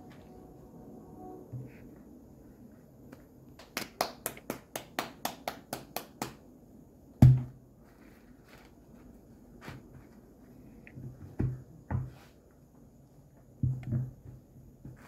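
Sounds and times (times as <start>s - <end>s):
hands patting dough: 3.1s - 6.5s.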